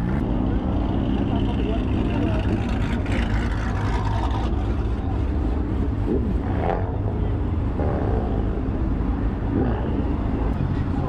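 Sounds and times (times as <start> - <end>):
motorcycle engine at low revs: 0.0 - 10.6.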